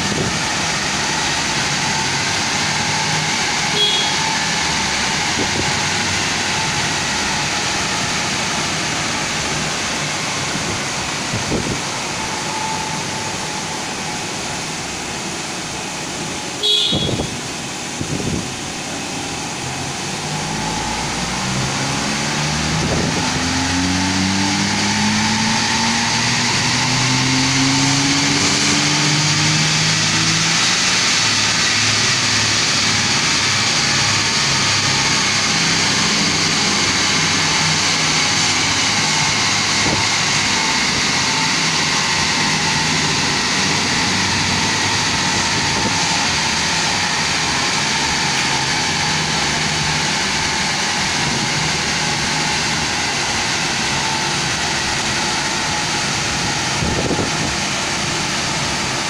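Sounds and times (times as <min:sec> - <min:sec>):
car engine revving under load: 0:16.6 - 0:59.0
tyres whirring on rollers: 0:18.4 - 0:59.0.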